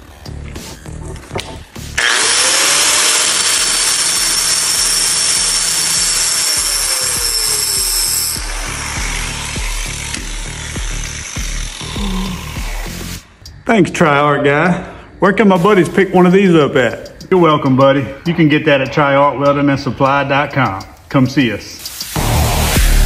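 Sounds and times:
background music with beat: 0.0 - 2.0, 6.8 - 13.6, 15.5 - 23.0
angle grinder grinding: 0.9 - 13.2
grinder motor winding down: 2.0 - 13.2.

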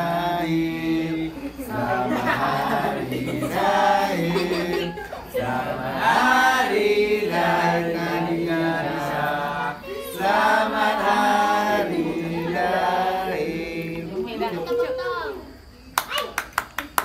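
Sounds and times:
people singing birthday song: 0.0 - 14.7.

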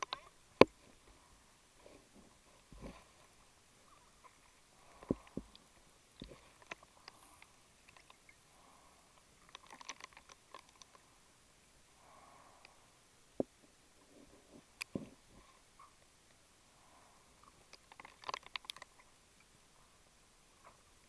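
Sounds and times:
diving gear clicks underwater: 17.7 - 19.0.

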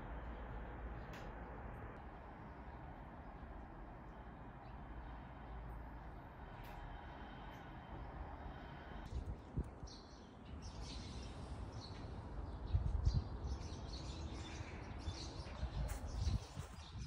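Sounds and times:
small birds chirping: 6.5 - 17.0.

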